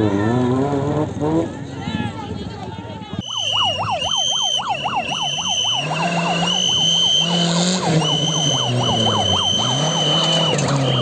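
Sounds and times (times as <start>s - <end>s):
rally car engine revving: 0.0s - 1.7s, 5.0s - 11.0s
fast warbling tone: 3.2s - 11.0s.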